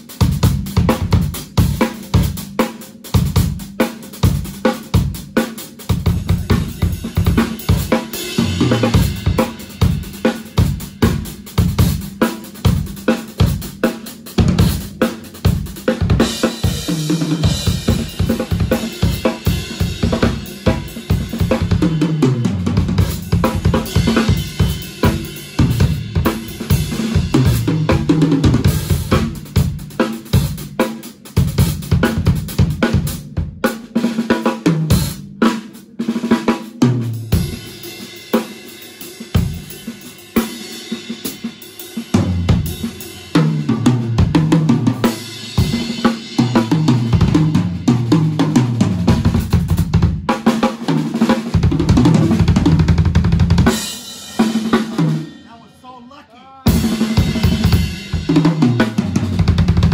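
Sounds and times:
snare and bass drum: 0.0s - 56.1s, 56.7s - 59.9s.

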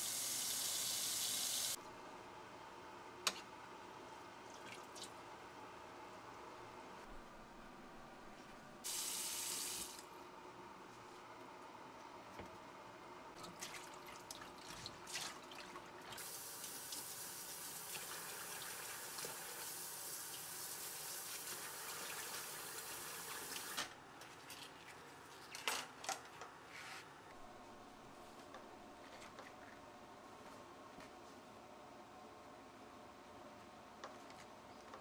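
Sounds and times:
kitchen tap running: 0.0s - 1.8s, 8.9s - 10.0s, 16.2s - 23.8s
water splashing in sink: 13.4s - 17.0s.

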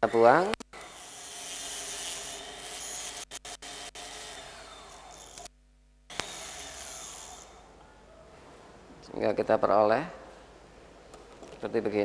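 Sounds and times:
dental handpiece grinding metal: 0.0s - 5.5s, 6.1s - 7.7s.

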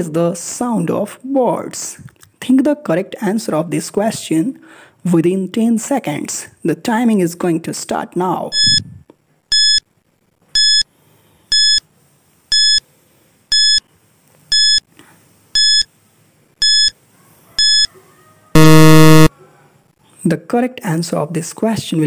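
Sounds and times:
short high electronic beeps: 8.6s - 8.8s, 18.6s - 19.3s
low buzzer: 18.6s - 19.3s.

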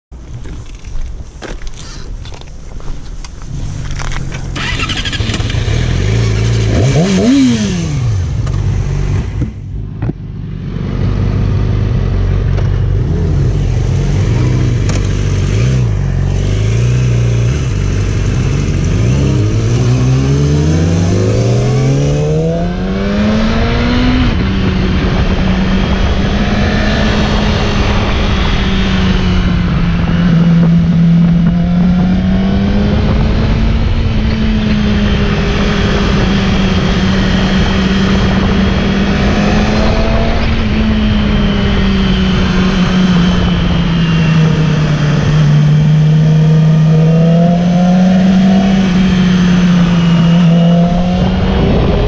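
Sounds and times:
motorcycle engine revving: 3.4s - 52.0s
wind rushing: 18.6s - 52.0s.

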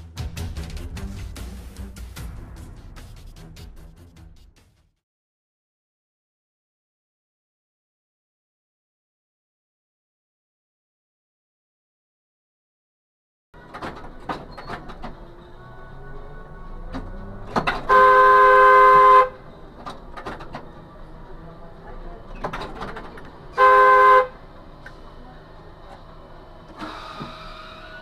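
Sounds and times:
car horn honking: 17.6s - 19.5s, 23.5s - 24.4s.

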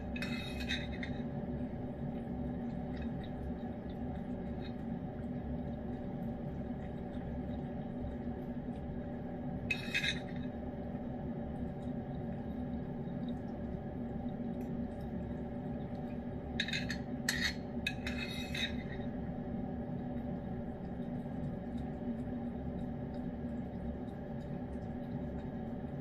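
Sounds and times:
spoon scraping bowl: 0.0s - 1.3s, 9.7s - 10.4s, 16.6s - 19.1s
electrical hum: 0.0s - 26.0s.

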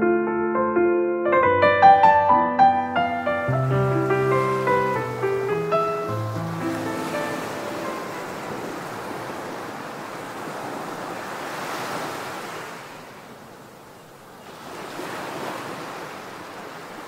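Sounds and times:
ocean waves breaking on beach: 3.4s - 17.0s.

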